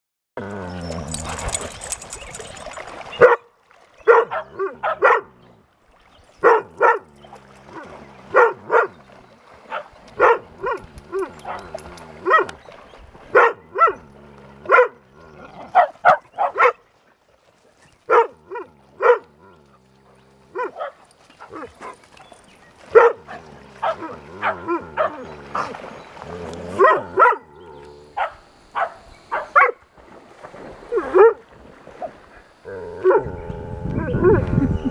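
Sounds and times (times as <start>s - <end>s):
dog barking: 3.2s - 5.3s, 6.4s - 7.0s, 8.3s - 8.9s, 9.7s - 11.6s, 12.2s - 12.5s, 13.3s - 14.0s, 14.7s - 15.0s, 15.7s - 16.8s, 18.1s - 19.3s, 20.6s - 22.0s, 22.9s - 25.7s, 26.8s - 27.5s, 28.2s - 29.8s, 31.1s - 31.4s.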